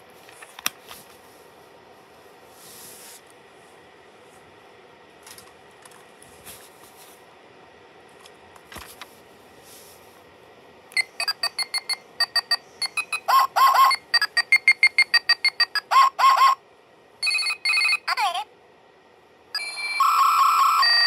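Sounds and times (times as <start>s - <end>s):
toy phone electronic tune: 11.0s - 16.6s, 17.2s - 18.4s, 19.6s - 21.0s.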